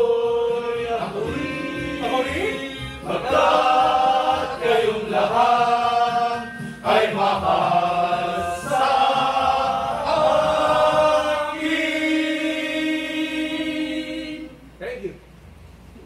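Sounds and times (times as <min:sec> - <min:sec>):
men singing: 0:00.0 - 0:14.6.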